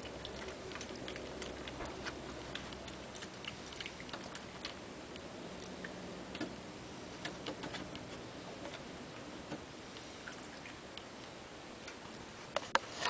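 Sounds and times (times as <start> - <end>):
animal chewing and licking: 0.0 - 8.9
steady low hiss: 0.0 - 13.0.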